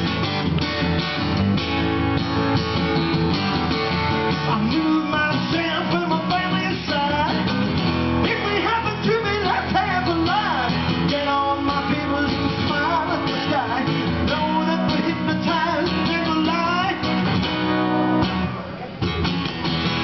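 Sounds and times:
acoustic guitar strumming: 0:00.0 - 0:20.0
man singing into a microphone: 0:04.3 - 0:17.2.

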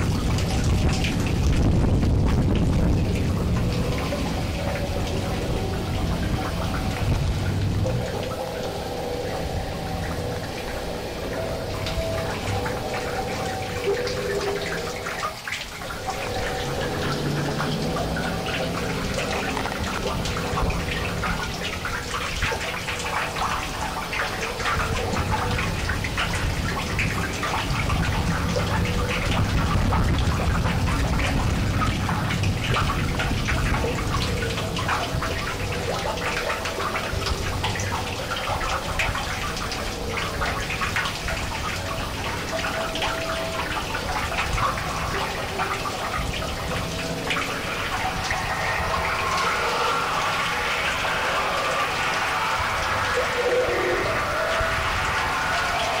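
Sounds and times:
low rumble: 0:00.0 - 0:24.0
crackling hissing noise: 0:00.0 - 0:56.0.

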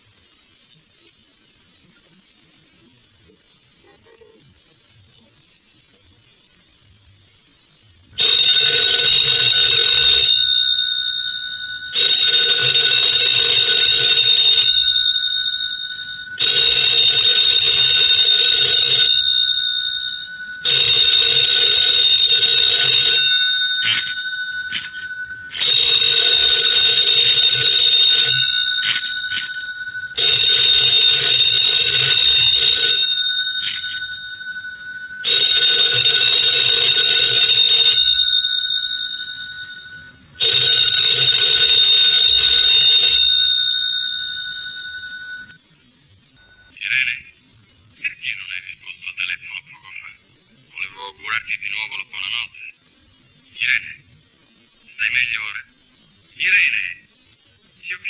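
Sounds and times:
bell ringing: 0:08.2 - 0:45.6.

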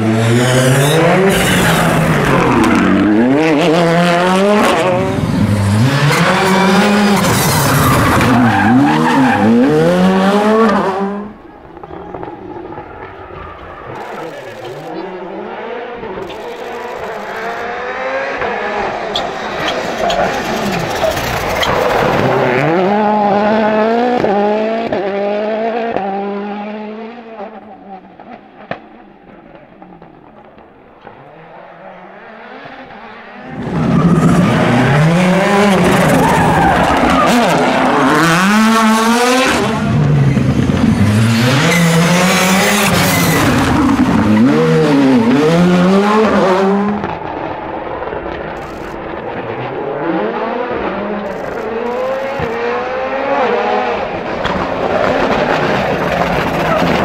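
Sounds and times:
rally car engine revving: 0:00.0 - 0:57.0
car braking: 0:00.1 - 0:15.1, 0:16.0 - 0:24.3, 0:32.5 - 0:49.8.

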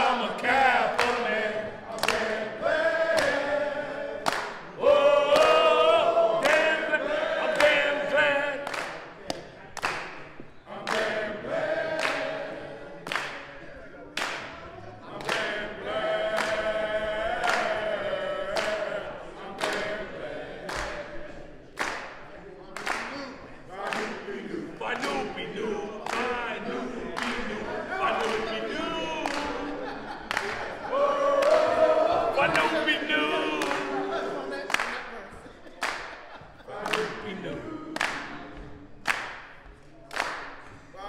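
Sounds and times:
men singing a cappella: 0:00.0 - 0:08.8, 0:15.0 - 0:21.8, 0:23.0 - 0:35.6, 0:36.3 - 0:38.8
hand claps: 0:00.9 - 0:01.3, 0:01.9 - 0:02.5, 0:03.1 - 0:03.6, 0:04.2 - 0:05.7, 0:06.4 - 0:06.7, 0:07.5 - 0:07.9, 0:08.6 - 0:12.4, 0:13.0 - 0:18.9, 0:19.6 - 0:20.0, 0:20.6 - 0:24.3, 0:26.0 - 0:30.8, 0:31.4 - 0:31.8, 0:33.6 - 0:41.0.

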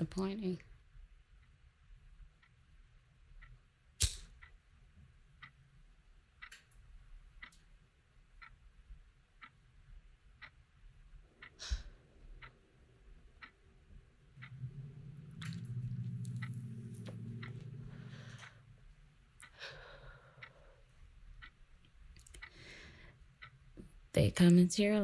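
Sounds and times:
steady ticking: 0:01.4 - 0:25.0
sharp clicks: 0:03.4 - 0:04.5, 0:14.4 - 0:18.6
low hum: 0:10.7 - 0:24.2.

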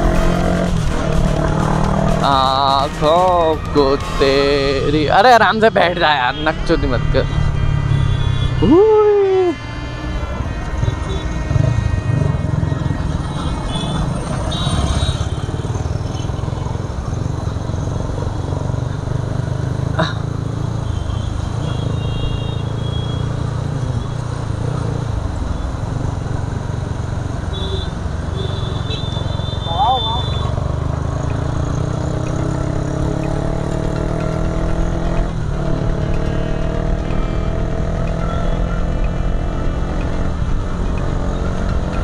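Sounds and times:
high horn toots: 0:00.0 - 0:16.3, 0:20.7 - 0:24.4, 0:27.5 - 0:30.6, 0:34.9 - 0:40.2
motorcycle running: 0:00.0 - 0:42.0.

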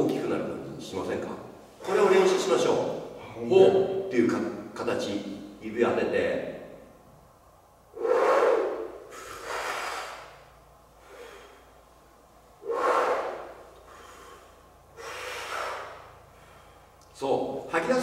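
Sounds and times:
deep breaths rushing: 0:07.9 - 0:17.0.

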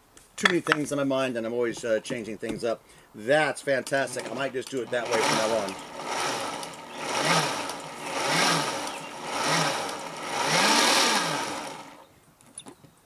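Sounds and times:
blender motor pulsing: 0:04.1 - 0:12.0.

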